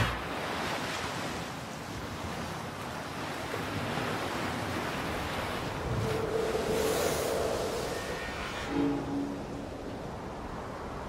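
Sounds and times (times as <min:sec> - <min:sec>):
sea waves: 0:00.0 - 0:11.0
wind rushing: 0:05.4 - 0:11.0.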